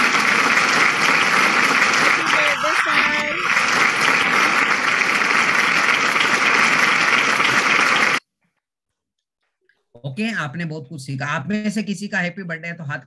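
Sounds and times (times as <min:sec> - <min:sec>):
crowd applause: 0:00.0 - 0:08.2.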